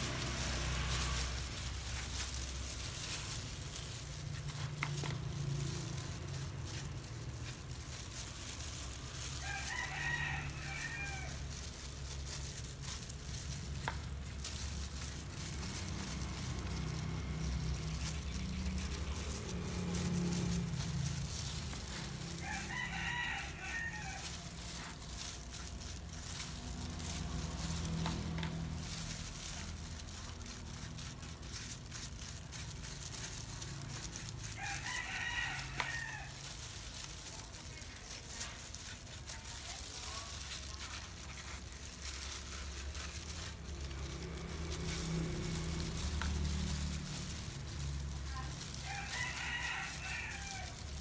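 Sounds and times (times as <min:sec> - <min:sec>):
rooster crowing: 0:09.3 - 0:11.6, 0:22.1 - 0:25.0, 0:34.4 - 0:36.4, 0:48.3 - 0:51.0.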